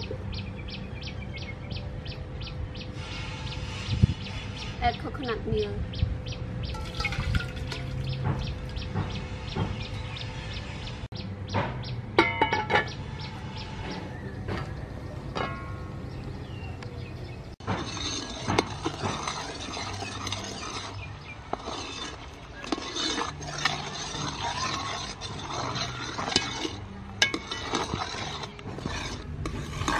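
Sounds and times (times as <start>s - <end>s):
metal ladle stirring in pot: 6.7s - 10.7s, 17.6s - 29.9s
metal pot lid clinking: 6.8s - 8.0s, 12.2s - 12.9s.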